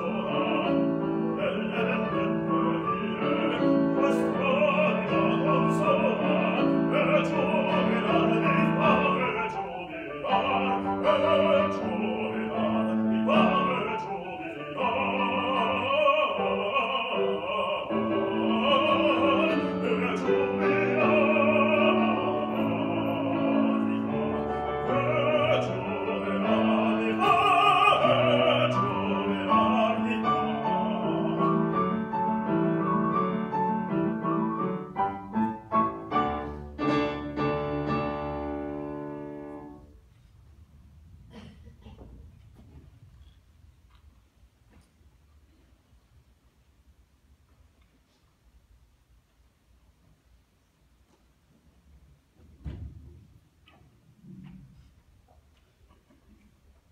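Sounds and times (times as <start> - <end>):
baritone singing opera: 0.0 - 32.9
grand piano: 0.0 - 56.9.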